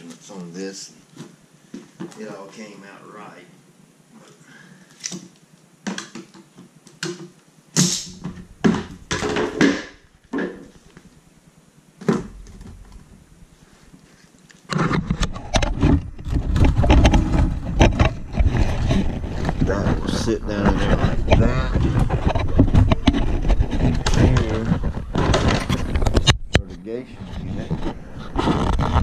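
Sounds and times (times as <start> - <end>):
plastic box knocks and clunks: 8.2 - 10.7
plastic scraping and rustling: 13.8 - 29.0.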